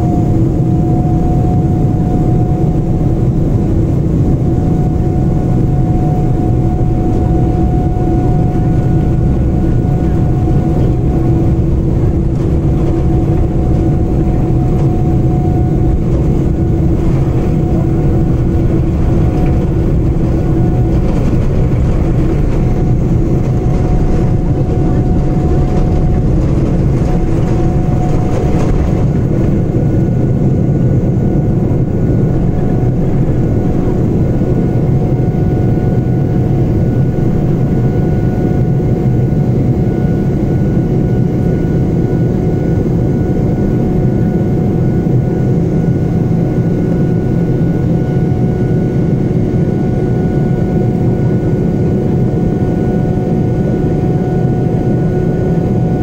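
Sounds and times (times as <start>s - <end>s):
wheels rumbling on runway: 0.0s - 41.6s
jet engine rumble: 0.0s - 56.0s
jet engine whine: 0.0s - 56.0s.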